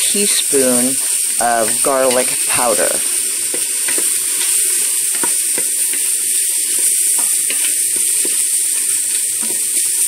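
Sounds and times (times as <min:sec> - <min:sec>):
mushrooms sizzling in oil: 0:00.0 - 0:10.0
small pops and crackles: 0:03.0 - 0:10.0.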